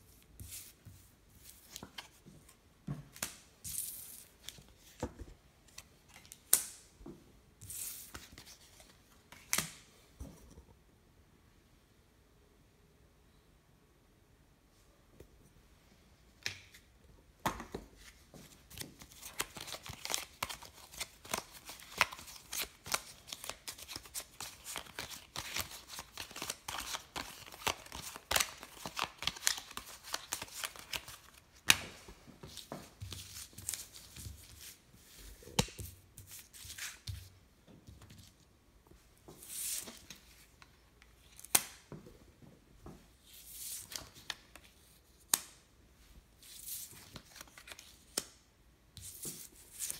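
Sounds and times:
playing cards flicking and snapping: 18.7 - 32.0.

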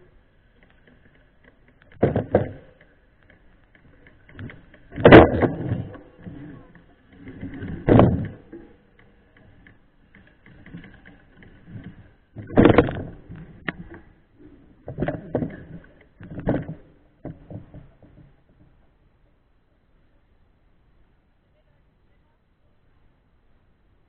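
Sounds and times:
bike knocking and clattering: 0.5 - 18.8.

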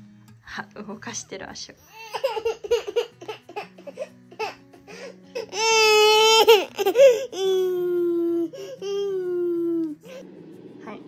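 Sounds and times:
baby boy crying: 1.8 - 10.2.

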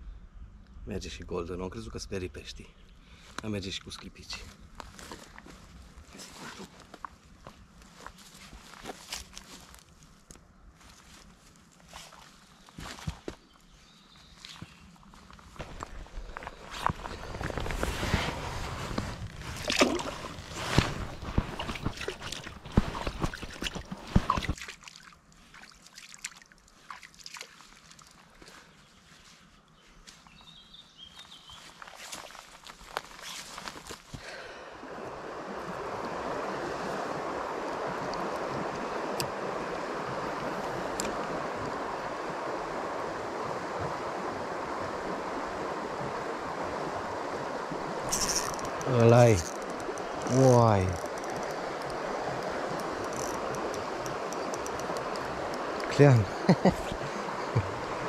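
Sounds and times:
river water sloshing and splashing: 10.8 - 13.4, 14.2 - 28.8, 31.6 - 58.0
faint ticks: 48.1 - 55.9.

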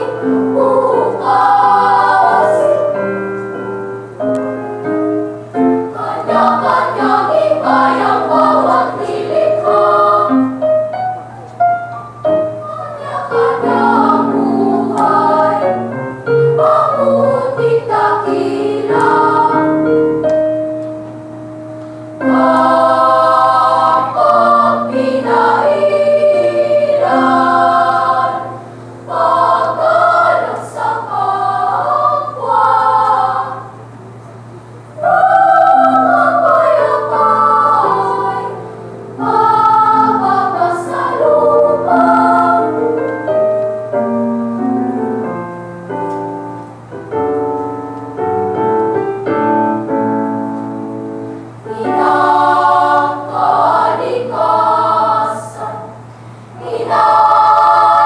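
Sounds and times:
girls choir singing: 0.0 - 3.8, 5.3 - 11.0, 12.2 - 20.8, 22.1 - 43.6, 51.3 - 58.0.

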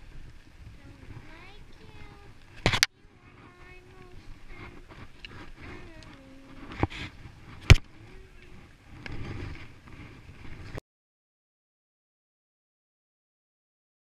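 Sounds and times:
skis scraping over snow: 3.2 - 10.8.

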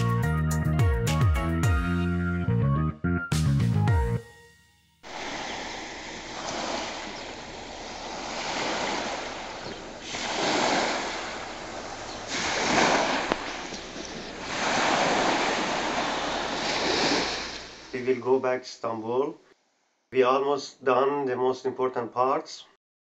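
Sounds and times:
small waves washing onto beach: 5.0 - 18.0.

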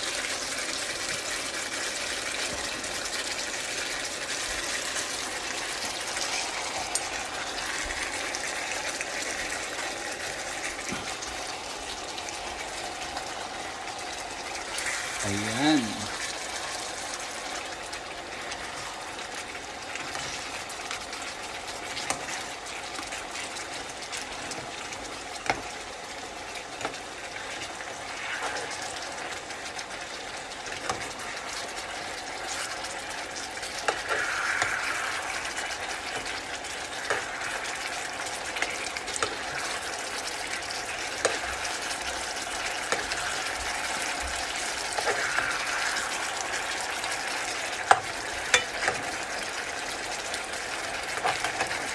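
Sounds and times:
food sizzling in a frying pan: 0.0 - 51.9
spoon stirring and clicking on pan: 47.8 - 49.1.

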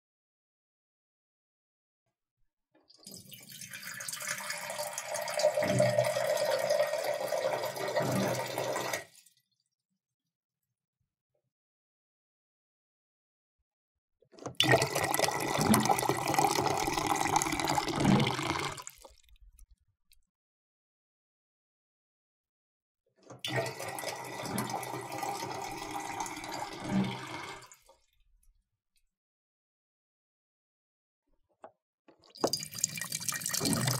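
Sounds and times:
water dispenser stream running: 3.1 - 9.1, 14.5 - 19.0, 23.4 - 27.7, 32.4 - 33.9.

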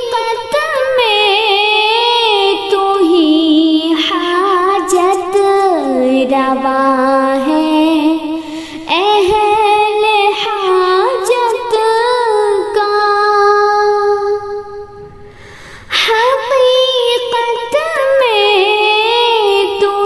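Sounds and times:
woman singing a hymn: 0.0 - 14.8, 15.9 - 20.0.

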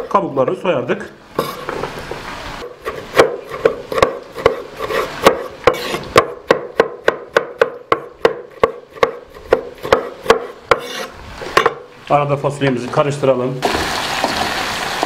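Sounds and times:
knife chopping on wooden board: 2.6 - 11.8.

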